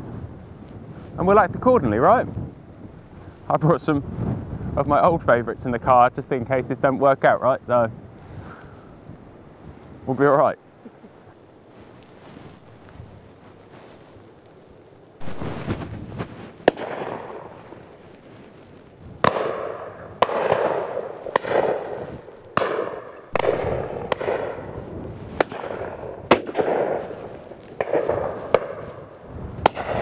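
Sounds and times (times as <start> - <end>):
shotgun shots echoing: 16.6 - 17.6, 19.2 - 24.8, 25.4 - 27.2, 27.8 - 29.0, 29.7 - 30.0.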